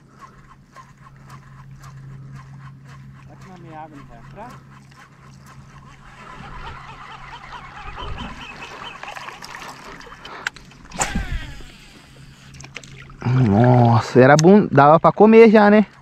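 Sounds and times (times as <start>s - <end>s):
faint bird calls: 0.0s - 10.5s
fishing reel spool whirring: 0.0s - 13.3s.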